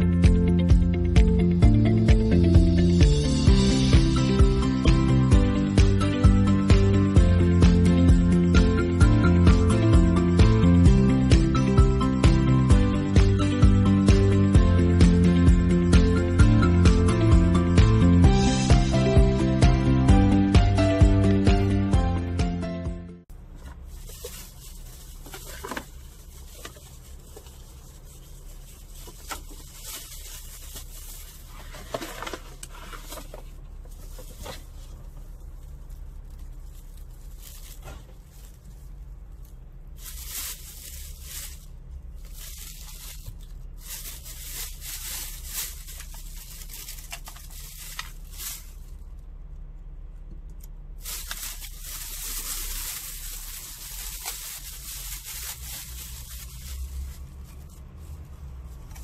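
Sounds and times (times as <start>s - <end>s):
carrier bags rustling: 23.3s - 49.1s, 51.0s - 59.0s.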